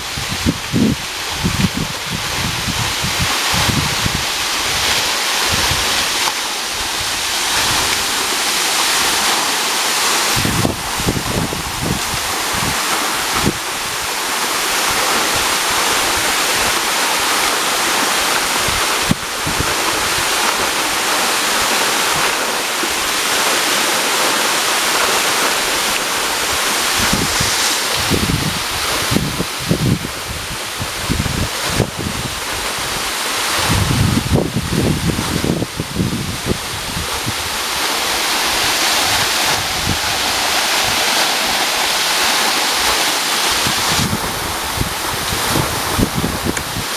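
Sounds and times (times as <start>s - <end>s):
wind rumble on microphone: 0.0s - 8.3s, 10.3s - 14.1s, 18.4s - 20.7s, 26.2s - 41.6s, 43.4s - 46.9s
waterfall rushing and splashing: 0.0s - 46.9s.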